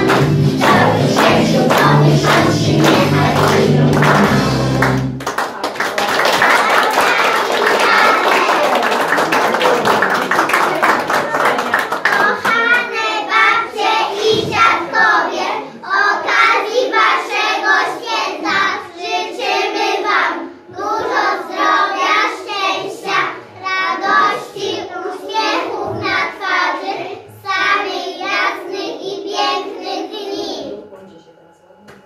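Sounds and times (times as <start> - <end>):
young children singing: 0.0 - 5.1, 6.6 - 8.6, 11.3 - 30.9
music: 0.0 - 5.9, 13.0 - 32.0
clapping: 0.0 - 12.9.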